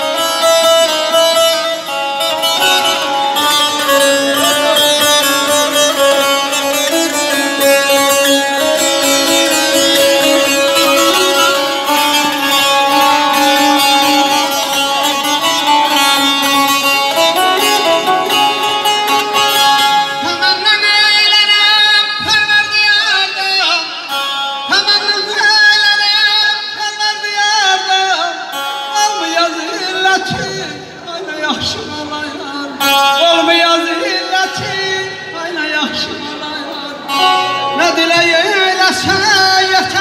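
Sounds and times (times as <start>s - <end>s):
lute melody with drone: 0.0s - 26.7s, 36.8s - 40.0s.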